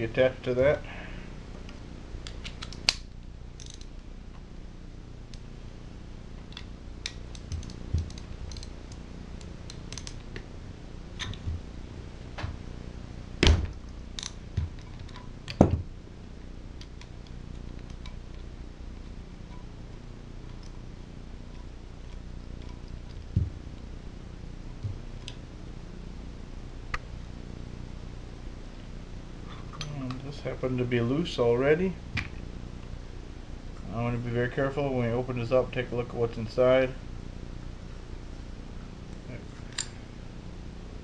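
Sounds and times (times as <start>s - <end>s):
socket ratchet clicking: 3.6s - 3.9s, 6.6s - 10.3s.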